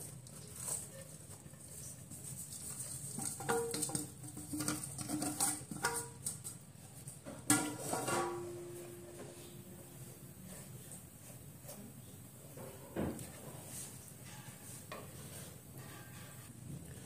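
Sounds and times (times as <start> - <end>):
metal bowl knocking against pan: 3.2 - 6.2.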